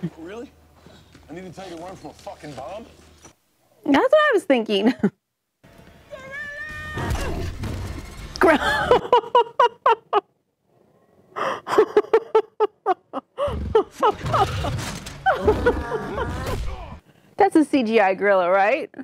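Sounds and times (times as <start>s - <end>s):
woman laughing: 4.7s - 5.2s, 8.4s - 10.3s, 11.4s - 16.5s.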